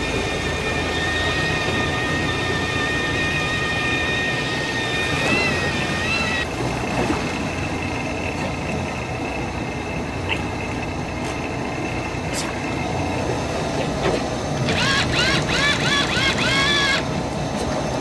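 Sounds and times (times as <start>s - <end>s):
boat engine rumble: 0.0s - 18.0s
high steady whine: 0.0s - 18.0s.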